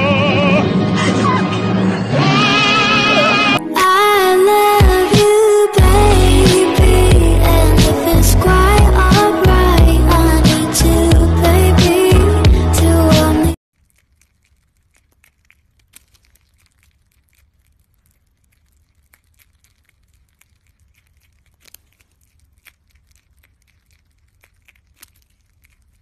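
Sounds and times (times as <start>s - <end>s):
animal chewing apple: 13.7s - 26.0s.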